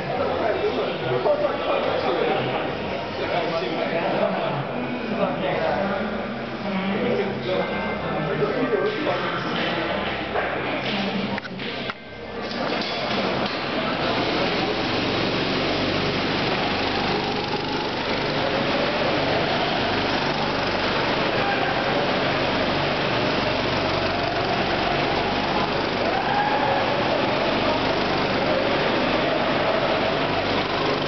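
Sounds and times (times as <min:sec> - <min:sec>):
go-kart engines droning: 0:12.0 - 0:31.0.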